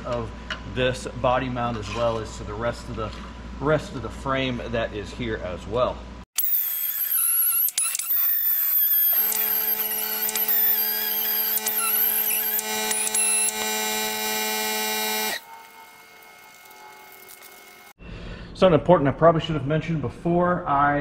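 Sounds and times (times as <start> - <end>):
die grinder whining: 6.4 - 18.0.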